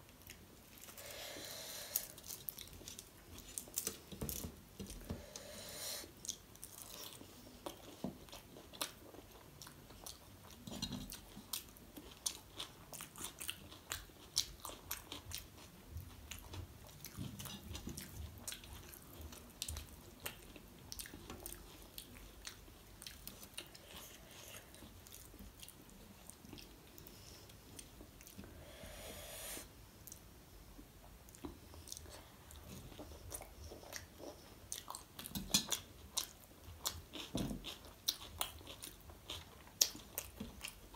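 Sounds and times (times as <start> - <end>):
chewing and wet mouth clicks: 32.9 - 40.8.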